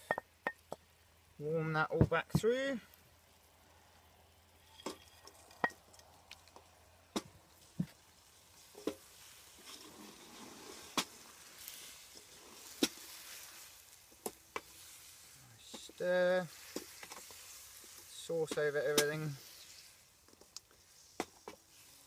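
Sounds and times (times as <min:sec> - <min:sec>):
food sizzling: 0:04.3 - 0:22.0
wooden spoon stirring in wok: 0:07.5 - 0:22.0.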